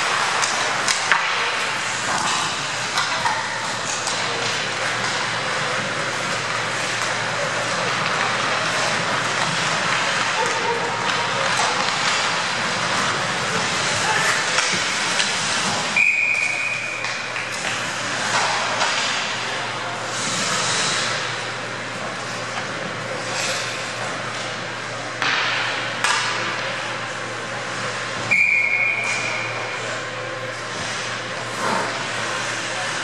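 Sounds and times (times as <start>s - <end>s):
skates hissing on ice: 0.1s - 19.2s, 20.0s - 24.6s
referee's whistle blast: 16.0s - 16.8s.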